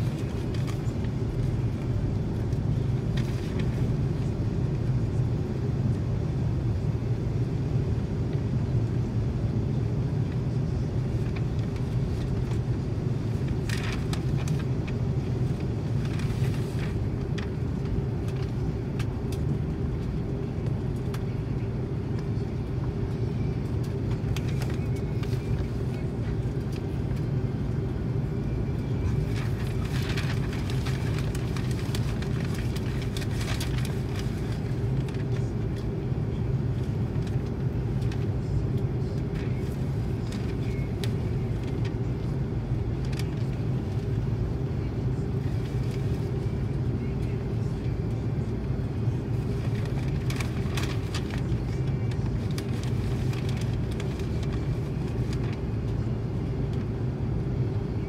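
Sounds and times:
airplane cabin rumble while taxiing: 0:00.0 - 0:58.0.

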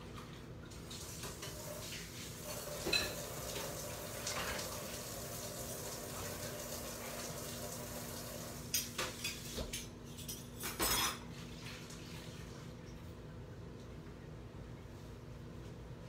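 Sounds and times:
cookware clattering: 0:02.8 - 0:03.3, 0:08.8 - 0:11.3
metal utensils clinking: 0:08.7 - 0:11.2.

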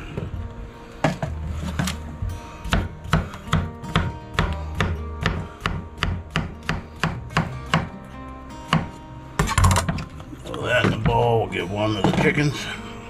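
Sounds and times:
knife strikes on cutting board: 0:02.7 - 0:07.9.

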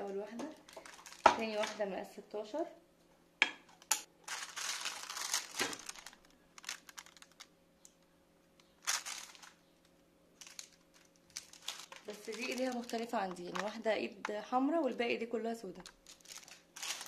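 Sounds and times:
plastic film crinkling: 0:00.0 - 0:01.8, 0:03.8 - 0:08.0, 0:08.6 - 0:14.3, 0:15.7 - 0:17.0.

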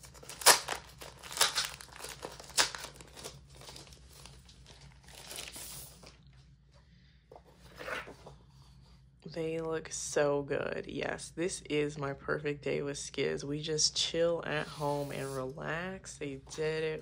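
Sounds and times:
plastic wrapping crinkling: 0:00.0 - 0:06.3.

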